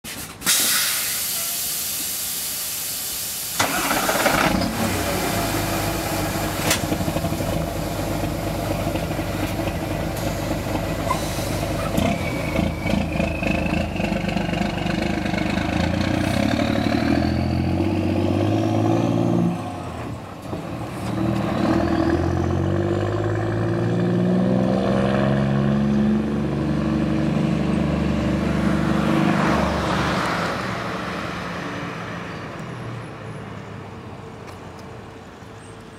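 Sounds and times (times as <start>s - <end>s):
air hiss: 0.1s - 4.0s
truck diesel engine revving: 3.6s - 31.0s.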